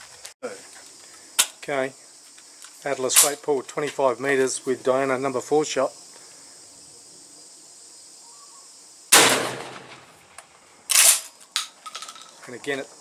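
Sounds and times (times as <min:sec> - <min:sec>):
shotgun blast: 0:09.1 - 0:10.1.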